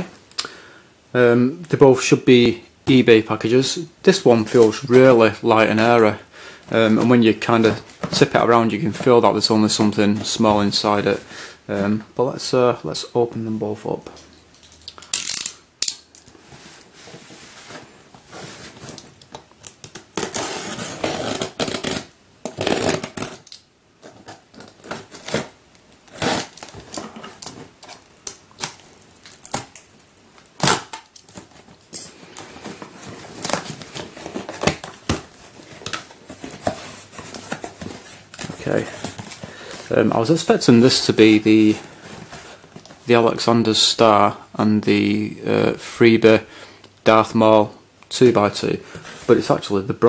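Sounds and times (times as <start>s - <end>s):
packing tape tearing: 14.8s - 16.2s, 18.9s - 39.7s.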